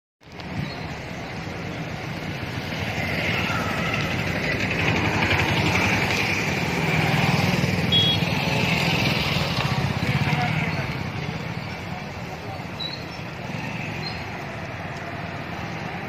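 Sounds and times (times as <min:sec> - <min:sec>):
road traffic: 0:00.2 - 0:16.0
motorcycle engine running: 0:02.3 - 0:12.1
high beep: 0:07.9 - 0:08.2.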